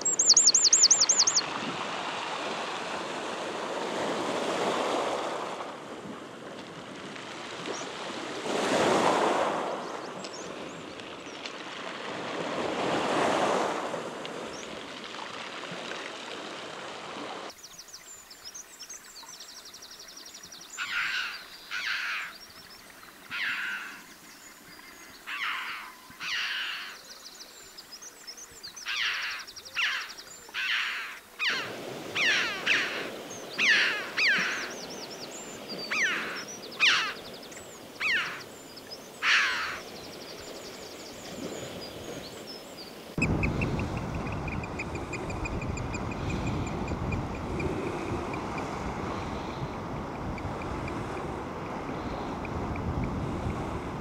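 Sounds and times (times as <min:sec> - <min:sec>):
bird harsh calls: 0:00.0 - 0:01.4, 0:20.8 - 0:22.4, 0:23.3 - 0:24.0, 0:25.0 - 0:27.0, 0:28.8 - 0:39.9
waves washing over pebbles: 0:00.9 - 0:17.6, 0:31.5 - 0:54.0.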